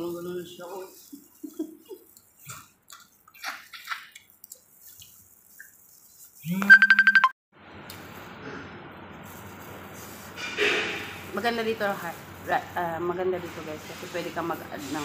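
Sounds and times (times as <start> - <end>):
wet eating sounds: 0.7 - 6.6.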